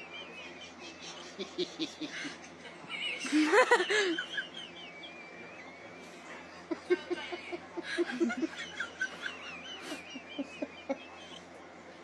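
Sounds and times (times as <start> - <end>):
person laughing: 0.5 - 4.8, 6.8 - 11.4.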